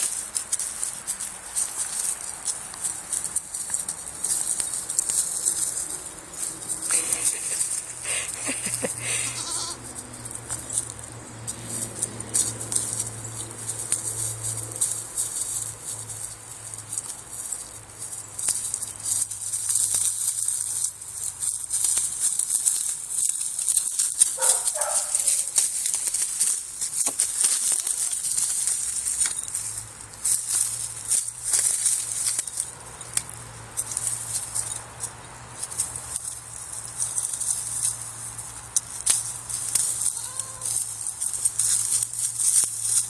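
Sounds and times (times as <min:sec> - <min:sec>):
goat bleat: 0:06.9 - 0:09.9, 0:40.0 - 0:40.9.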